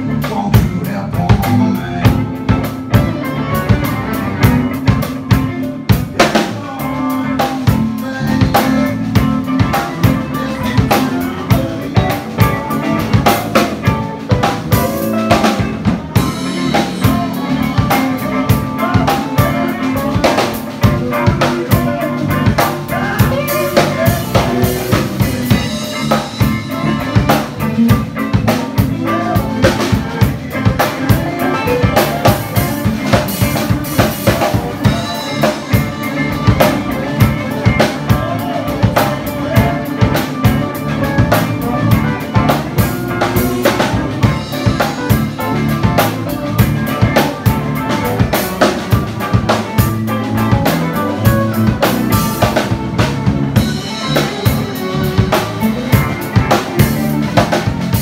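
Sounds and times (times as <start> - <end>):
drum kit beat: 0.0 - 58.0
electric guitars: 0.0 - 58.0.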